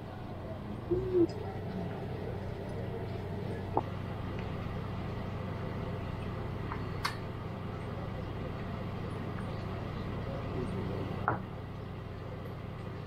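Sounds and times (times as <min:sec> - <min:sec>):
restaurant room hum: 0:00.0 - 0:13.0.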